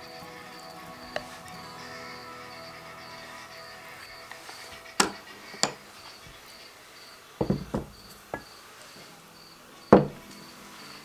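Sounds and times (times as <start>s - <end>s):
cricket chirping: 0.0s - 11.0s
knocks on wooden cutting board: 7.4s - 7.9s.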